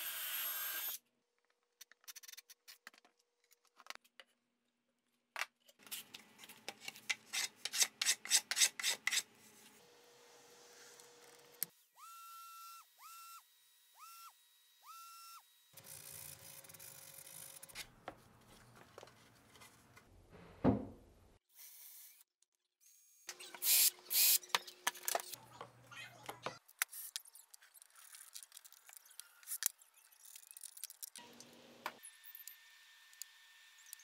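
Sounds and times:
cordless drill boring: 0.0 - 1.0
thump: 20.4 - 21.0.

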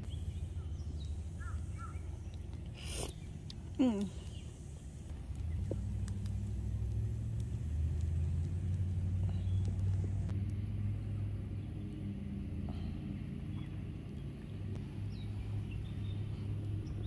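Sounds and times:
motor engine humming: 0.0 - 17.0
faint clicks: 5.3 - 10.6.

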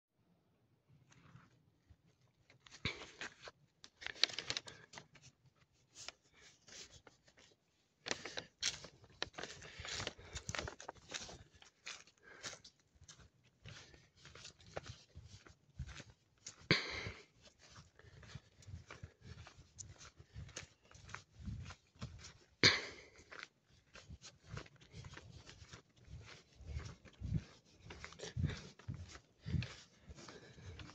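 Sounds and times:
crackle underfoot: 1.1 - 5.4, 6.0 - 30.9
footsteps on dirt path: 7.2 - 30.9
footsteps crunching on dry leaves: 8.1 - 16.1.

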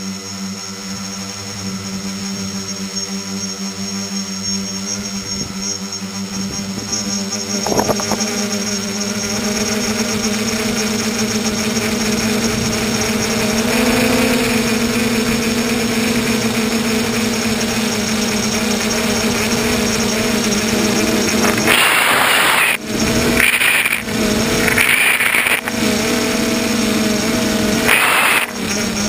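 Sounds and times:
drone motors and propellers: 0.0 - 29.0
loud rushing noise: 21.2 - 29.0.

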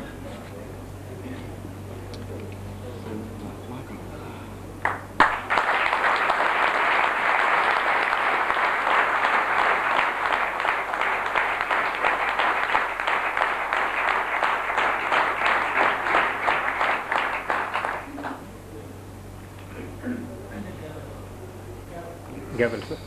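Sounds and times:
audience applauding: 4.8 - 18.5.

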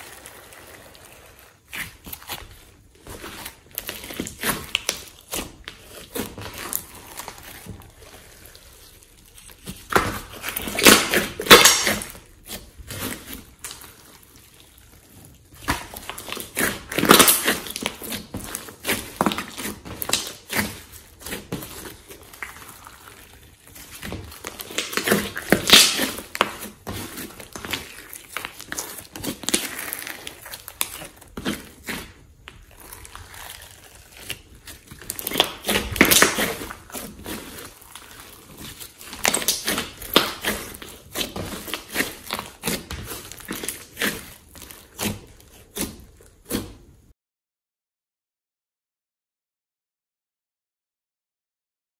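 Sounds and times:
slime being kneaded by hand: 0.0 - 47.1.

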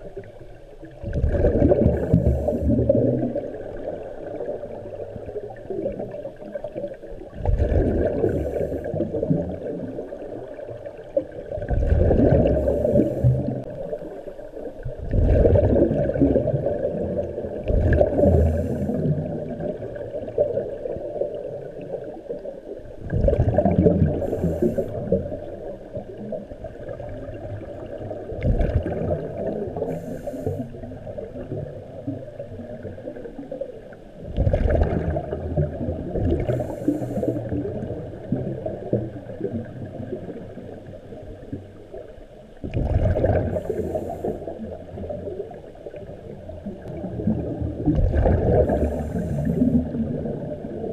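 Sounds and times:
exhaled bubbles: 0.0 - 41.5, 42.6 - 50.9
low wash of water: 0.0 - 50.9
swimmer breathing underwater: 1.8 - 3.1, 8.0 - 9.2, 12.2 - 13.7, 18.0 - 19.3, 24.0 - 25.2, 29.8 - 30.8, 36.4 - 37.6, 43.4 - 44.6, 48.2 - 50.0.

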